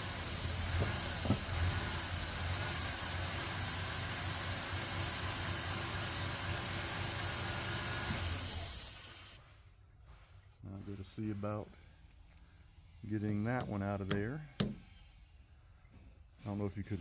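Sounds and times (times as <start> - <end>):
hiss of vacuum leak: 0.0 - 9.4.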